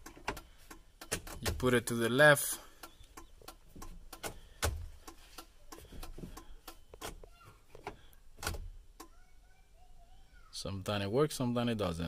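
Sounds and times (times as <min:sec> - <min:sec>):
turn signal clicking: 0:00.0 - 0:01.6, 0:02.8 - 0:07.2.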